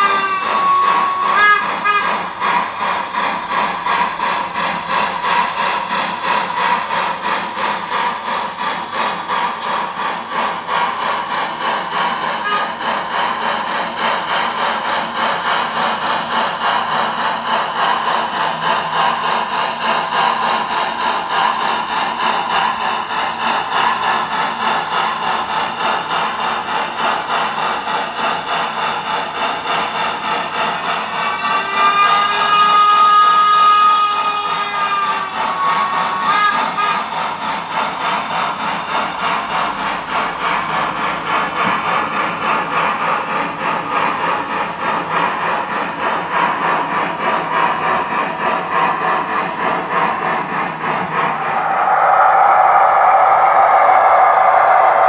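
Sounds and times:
locomotive whistle: 0.0 - 3.0, 12.4 - 12.9, 30.5 - 37.3, 51.3 - 55.0
model steam locomotive chuffing: 0.0 - 55.0.

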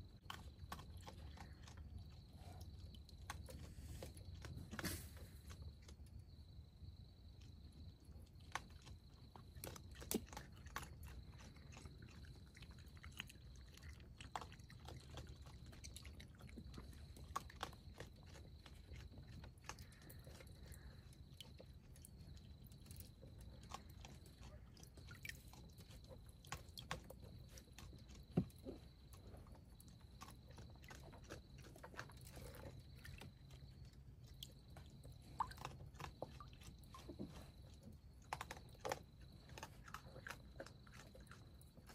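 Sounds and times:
raccoon chewing: 0.0 - 41.9.

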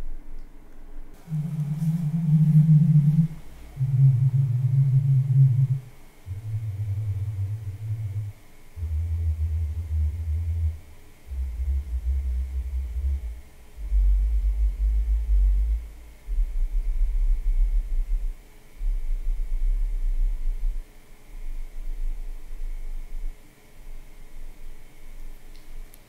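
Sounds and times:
bass test tones: 1.2 - 23.4.

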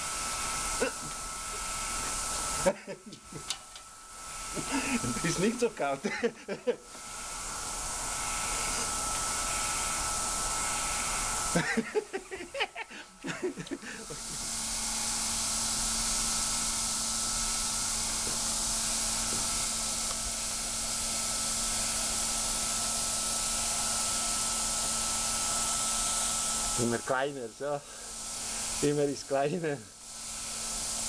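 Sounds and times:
man laughing: 0.8 - 1.2, 2.6 - 3.5, 4.5 - 7.0, 11.5 - 14.4.

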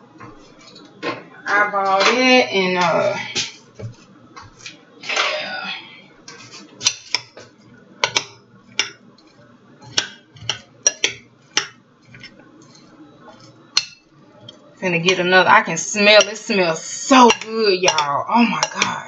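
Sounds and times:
spoon scraping dish: 6.3 - 14.6, 17.2 - 18.9
metal spoon clinking on ceramic dish: 9.9 - 12.8, 17.3 - 18.9.

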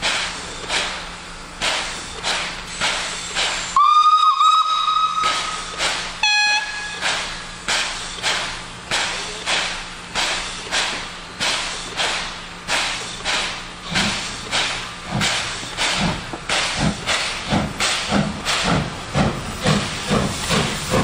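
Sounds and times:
steam locomotive chuffing: 0.0 - 21.0
steam whistle: 3.8 - 7.1.

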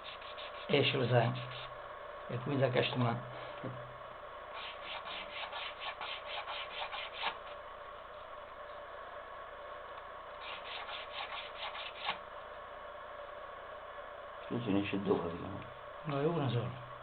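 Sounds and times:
knife scraping cane: 4.6 - 7.4, 10.4 - 12.2.

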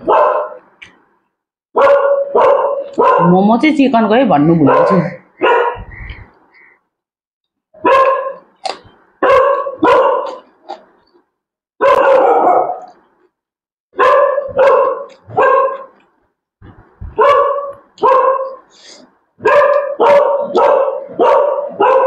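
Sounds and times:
dog barking: 0.0 - 0.7, 1.8 - 3.6, 4.5 - 6.0, 7.8 - 8.5, 9.2 - 10.5, 11.8 - 13.0, 14.0 - 16.0, 17.1 - 18.7, 19.4 - 22.0.

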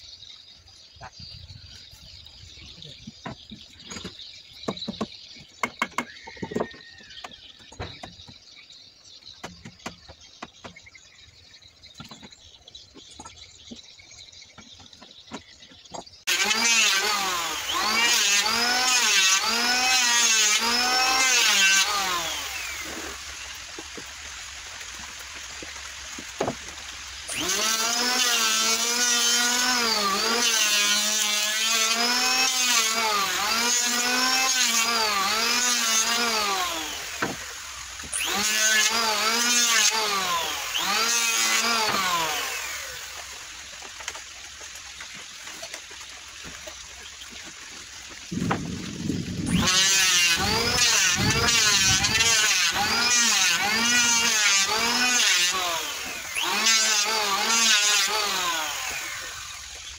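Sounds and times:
electric planer cutting wood: 16.3 - 24.1, 27.2 - 46.6, 47.4 - 59.9.

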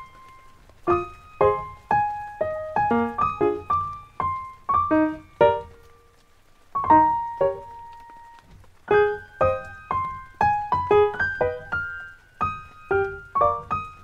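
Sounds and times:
slow piano melody: 0.0 - 14.0.

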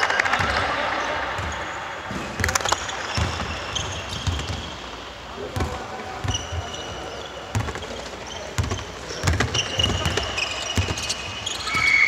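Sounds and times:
sneakers squeaking on floor: 0.0 - 12.0
basketball dribbling on wood: 2.4 - 4.6, 7.5 - 7.9, 8.6 - 10.2.

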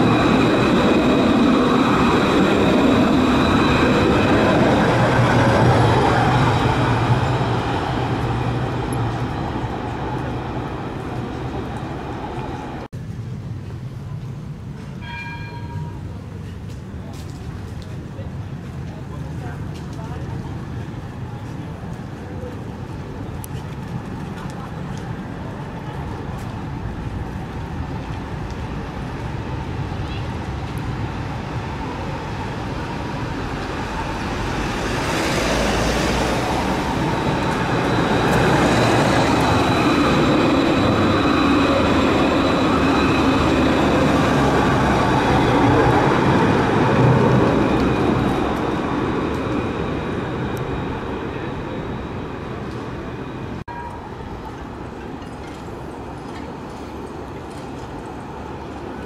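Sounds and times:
high tram whine: 0.0 - 12.9, 26.4 - 54.8
tram rolling past: 0.0 - 59.0.

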